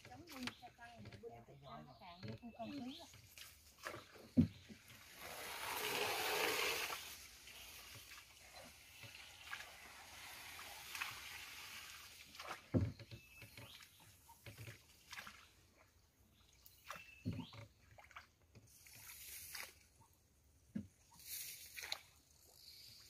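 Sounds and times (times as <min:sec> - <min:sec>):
water sloshing around rowboat: 0:00.0 - 0:23.0
rush of water: 0:04.9 - 0:12.9.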